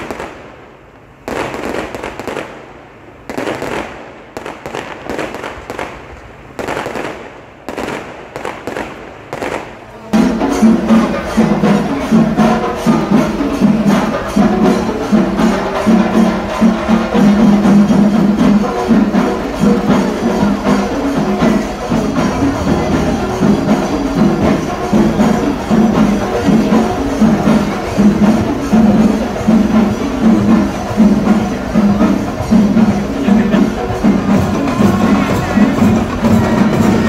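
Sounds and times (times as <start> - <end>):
fireworks bursting with crackling bangs: 0.0 - 11.8
music with steady percussion beat: 7.7 - 37.0.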